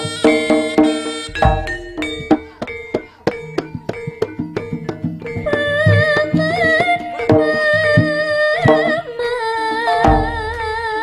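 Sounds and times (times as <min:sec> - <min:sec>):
drum strokes: 0:00.0 - 0:09.0, 0:09.9 - 0:11.0
wavering high melody: 0:00.0 - 0:11.0
deep drum stroke: 0:01.3 - 0:03.0.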